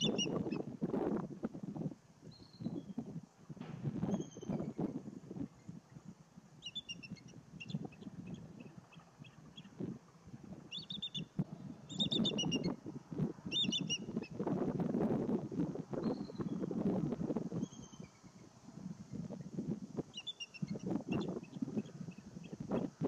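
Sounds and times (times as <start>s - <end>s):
songbird chirping: 0.0s - 0.6s, 6.6s - 9.8s, 10.6s - 12.8s, 13.5s - 14.4s, 20.1s - 23.0s
wind rumble on microphone: 0.0s - 23.0s.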